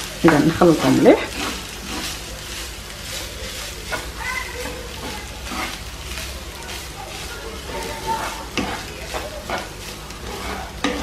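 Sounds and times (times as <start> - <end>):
rice sizzling: 0.0 - 11.0
wooden spoon scraping a pan: 0.0 - 11.0.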